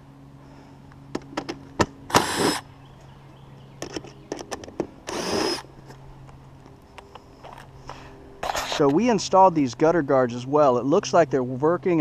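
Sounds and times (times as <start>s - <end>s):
cordless driver spinning a screw: 2.1s - 2.6s, 5.1s - 5.6s.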